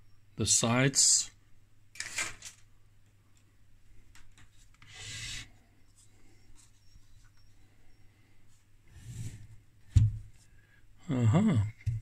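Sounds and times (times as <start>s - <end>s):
sheet metal scraping: 4.8s - 5.5s.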